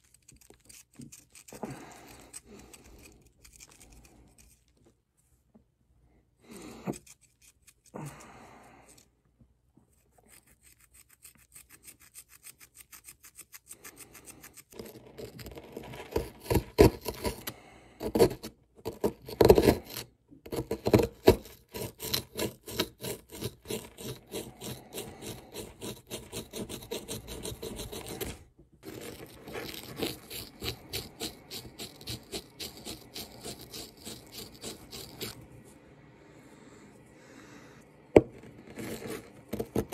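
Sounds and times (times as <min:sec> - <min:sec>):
plastic tool scraping plaster: 0:00.0 - 0:04.9, 0:09.9 - 0:35.6, 0:38.2 - 0:39.9.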